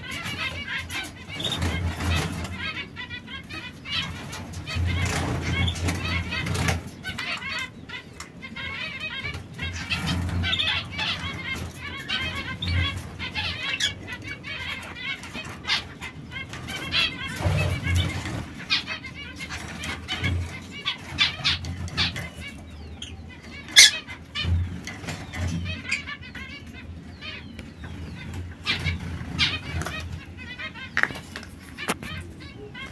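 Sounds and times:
birds clicking on perch and wire: 0.0s - 26.9s, 27.5s - 32.9s
canaries chirping: 0.0s - 32.9s.

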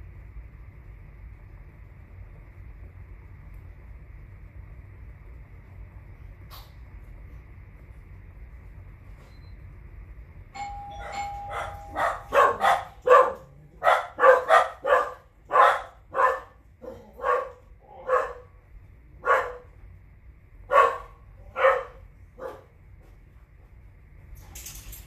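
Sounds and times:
steady chime-like tone: 10.6s - 12.1s
dog barking: 11.0s - 18.6s, 19.2s - 19.8s, 20.7s - 22.7s.

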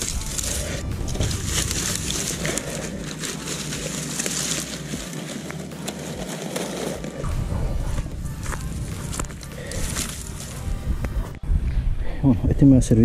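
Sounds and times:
dry brush rustling and snapping: 0.0s - 11.4s.

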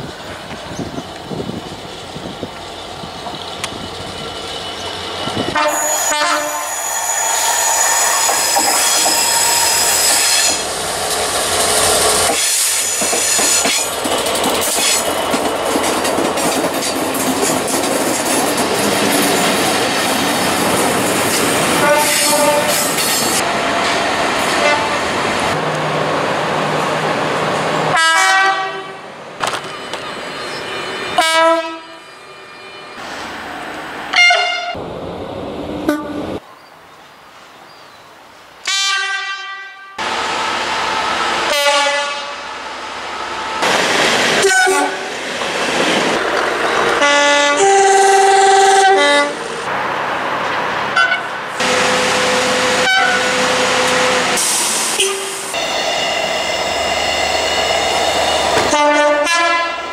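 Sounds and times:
locomotive horn: 5.5s - 7.0s, 21.8s - 22.9s, 24.6s - 25.0s, 27.9s - 29.0s, 31.2s - 32.0s, 34.1s - 34.8s, 35.9s - 36.3s, 38.6s - 40.0s, 41.4s - 42.4s, 44.4s - 45.1s, 47.0s - 49.5s, 51.0s - 55.8s, 58.6s - 59.9s
short sharp horn blasts: 5.6s - 6.8s, 51.0s - 54.4s
train wheels clattering on rails: 7.2s - 24.8s, 58.2s - 58.8s.

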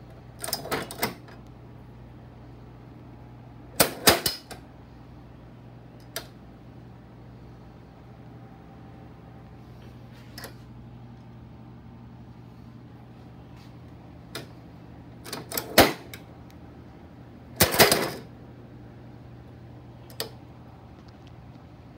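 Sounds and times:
metal lock pins clicking and clacking: 0.4s - 1.3s, 15.2s - 16.2s.

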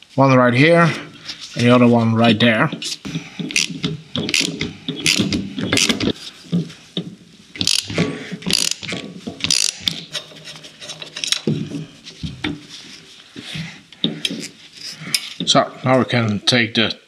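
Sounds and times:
ratchet wrench clicking: 4.3s - 6.0s, 7.6s - 10.0s.

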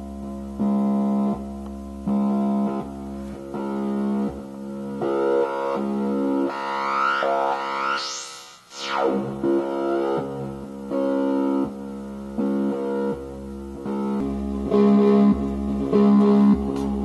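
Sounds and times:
falling synth pitch sweep: 5.2s - 10.6s.

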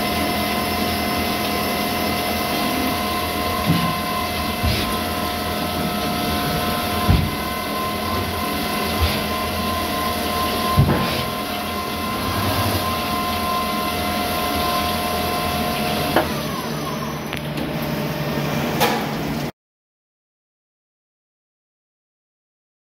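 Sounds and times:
lathe whining: 0.0s - 18.7s
machine knocks: 7.0s - 7.6s.

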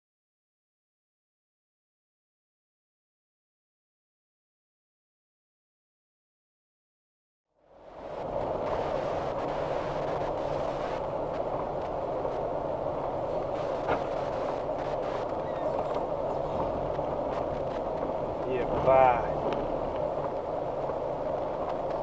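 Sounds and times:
car engine and road noise: 7.5s - 22.0s.

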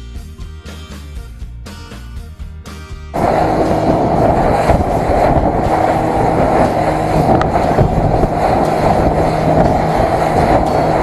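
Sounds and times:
boat engine drone: 3.2s - 11.0s
rushing wind: 3.2s - 11.0s
water against hull: 3.2s - 11.0s.

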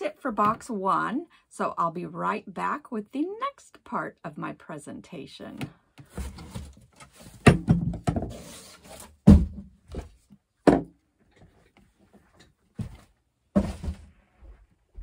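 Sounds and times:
cardboard box scraping on table: 6.0s - 7.5s, 8.2s - 9.2s
thuds and knocks on wooden table: 9.2s - 10.9s.

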